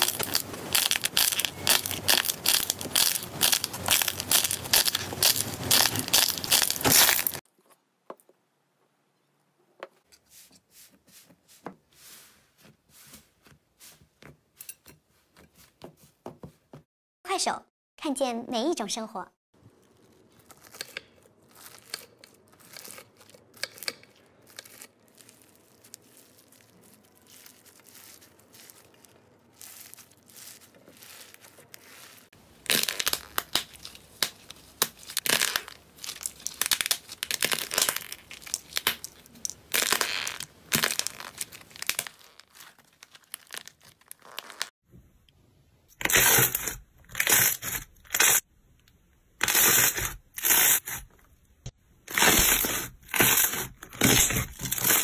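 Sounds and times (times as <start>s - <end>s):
crunching and tearing slime: 0.0s - 7.4s, 19.6s - 44.8s, 46.0s - 48.5s, 49.4s - 51.1s, 52.1s - 55.0s
knife slicing crackling slime: 52.1s - 55.0s.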